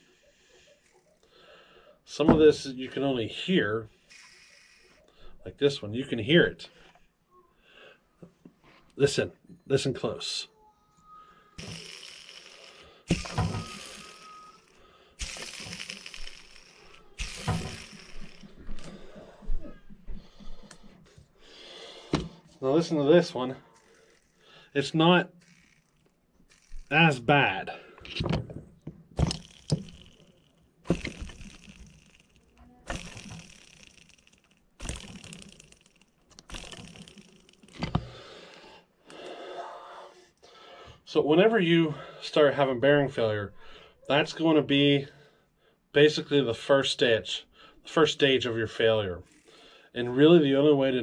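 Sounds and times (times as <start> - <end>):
bearing spinning with rattling whir: 4.0 - 5.1, 11.6 - 21.0, 22.8 - 38.2, 48.8 - 49.5.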